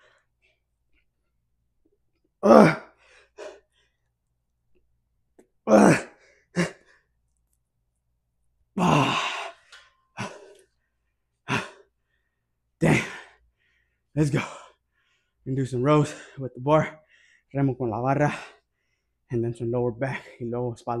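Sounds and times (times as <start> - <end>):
man exhaling and grunting: 2.4 - 3.6, 5.6 - 7.0, 8.8 - 10.6, 11.5 - 11.9, 12.8 - 13.4.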